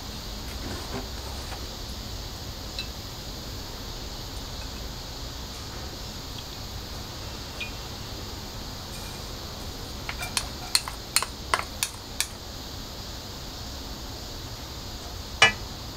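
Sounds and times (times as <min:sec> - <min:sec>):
background hiss: 0:00.0 - 0:15.9
kitchenware clinking on a wok: 0:10.1 - 0:12.3.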